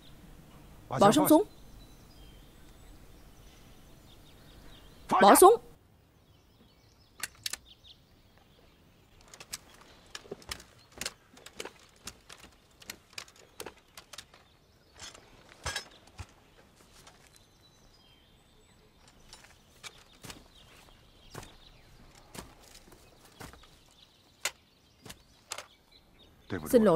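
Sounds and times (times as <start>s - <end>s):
weapons and gear rattling: 7.2s - 7.6s, 9.1s - 17.5s, 18.9s - 25.8s.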